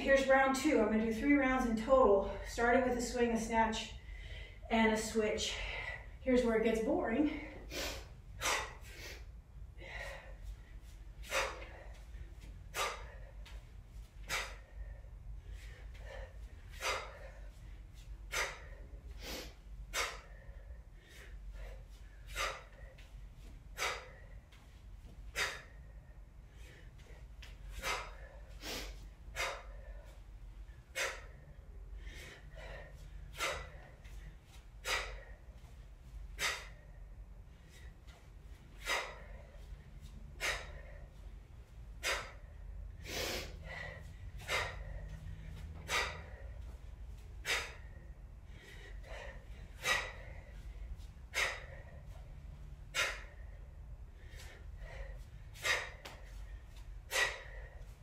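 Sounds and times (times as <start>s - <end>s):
woman's hissing breaths: 7.2s - 58.0s.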